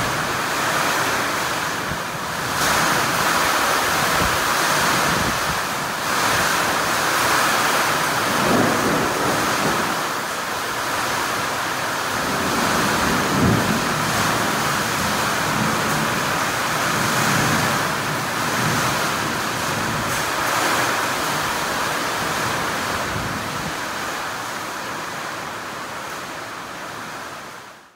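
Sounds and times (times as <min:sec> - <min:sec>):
heavy rain pouring: 0:00.0 - 0:27.9.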